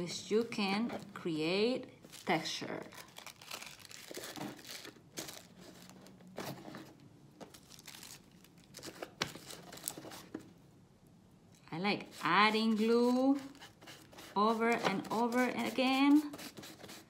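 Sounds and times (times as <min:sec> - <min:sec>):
tissue paper crinkling: 0:02.0 - 0:06.2, 0:07.5 - 0:10.3.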